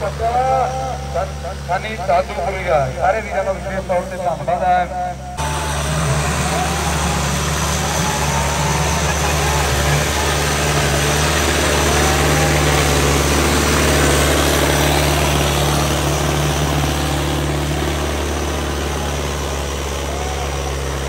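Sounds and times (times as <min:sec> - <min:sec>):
tractor diesel engine under load: 0:00.0 - 0:21.0
tyres churning through soil: 0:05.4 - 0:21.0.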